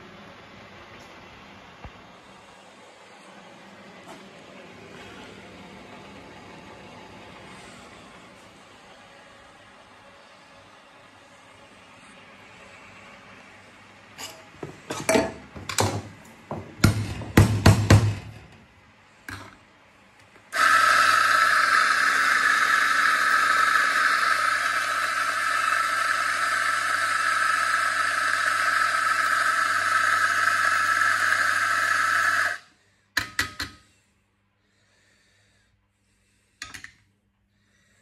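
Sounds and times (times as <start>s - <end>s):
coffee grinder motor whine: 20.6s - 32.6s.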